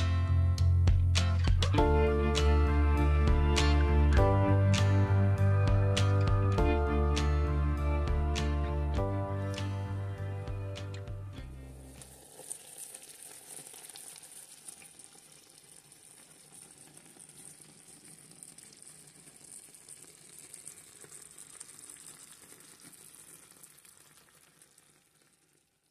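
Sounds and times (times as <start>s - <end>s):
food sizzling in a frying pan: 11.7s - 25.9s.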